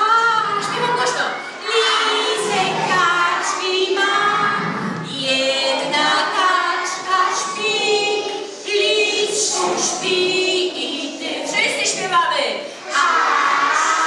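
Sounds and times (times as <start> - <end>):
group singing a lullaby: 1.4 - 12.1, 12.8 - 14.0.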